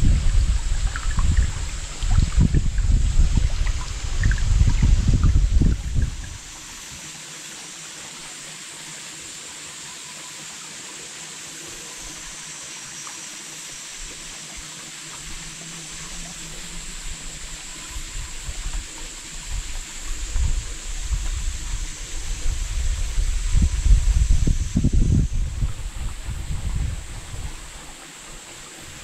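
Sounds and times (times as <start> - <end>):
wind gusts on microphone: 0.0 - 6.6, 16.5 - 29.0
mountain stream flowing: 0.0 - 29.0.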